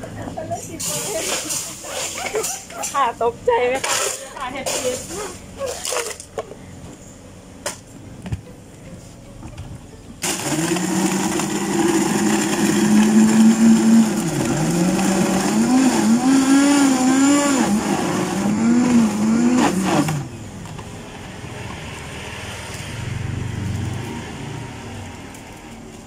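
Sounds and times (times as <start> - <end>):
blender crushing ice: 10.2 - 20.3.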